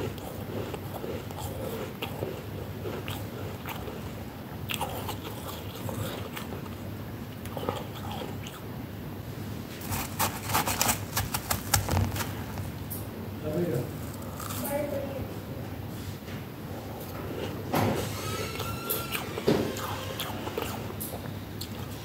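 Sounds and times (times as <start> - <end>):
chewing frost crunches: 0.0 - 8.6, 9.8 - 12.8, 13.9 - 14.8, 16.8 - 22.0
hand squeezing frost crackling: 9.7 - 12.8.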